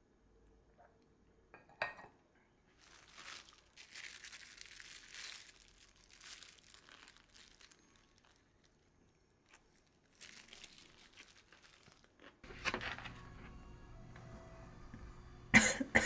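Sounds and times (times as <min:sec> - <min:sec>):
sandwich paper crinkling: 0:02.8 - 0:13.6.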